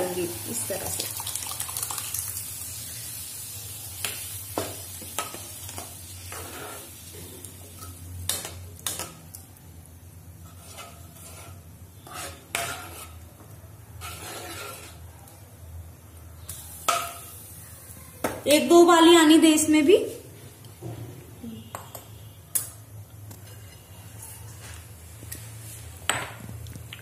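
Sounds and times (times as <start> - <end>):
low sizzle: 0.0 - 27.0
spoon clinking and scraping pan: 10.4 - 13.2.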